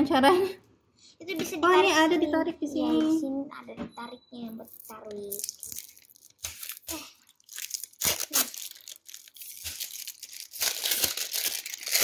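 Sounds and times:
plastic packaging crinkling and tearing: 4.7 - 12.0.

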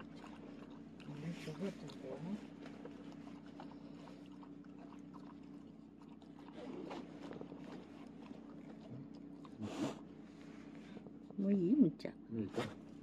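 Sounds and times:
dog lapping water: 0.0 - 11.2
steady low hum: 0.0 - 13.0
dog snorting burst: 9.6 - 10.1.

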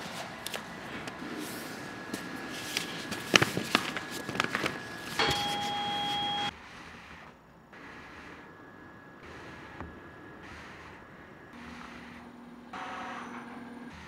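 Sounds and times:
machine electronic beep: 5.2 - 6.5.

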